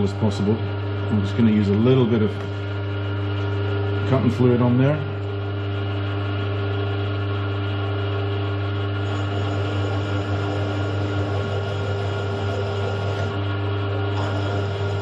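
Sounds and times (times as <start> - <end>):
milling machine motor hum: 0.0 - 15.0
drill bit cutting metal: 7.8 - 15.0.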